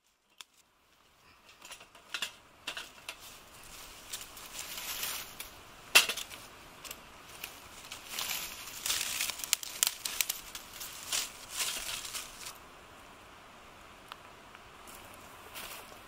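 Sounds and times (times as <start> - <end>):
light rustling: 1.3 - 12.6.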